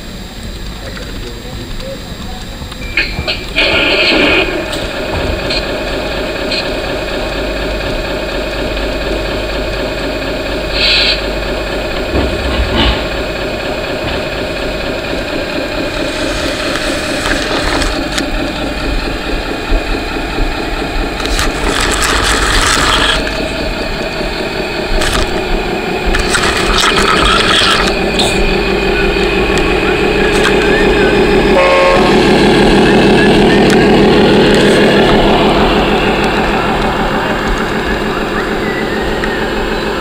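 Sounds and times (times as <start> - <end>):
model truck diesel engine sound: 3.1 - 40.0
short noisy bursts: 21.2 - 23.4, 24.9 - 36.0.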